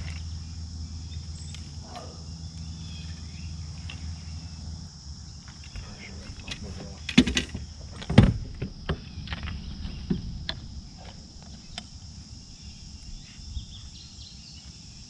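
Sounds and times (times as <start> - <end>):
high insect drone: 0.0 - 15.0
sharp knocks and clicks: 5.5 - 11.9.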